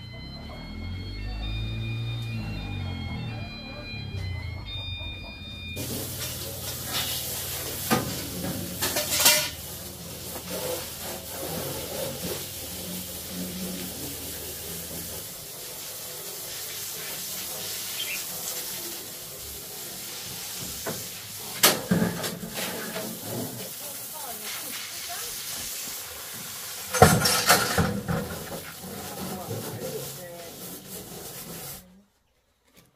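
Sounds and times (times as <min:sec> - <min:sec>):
hose water spraying on metal: 0:05.8 - 0:31.9.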